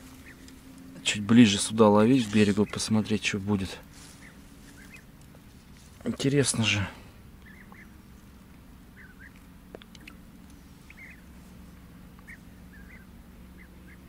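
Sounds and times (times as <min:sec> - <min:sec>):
low steady hum: 0:00.0 - 0:14.0
faint short animal calls: 0:08.9 - 0:09.4, 0:10.8 - 0:11.4, 0:12.2 - 0:14.0.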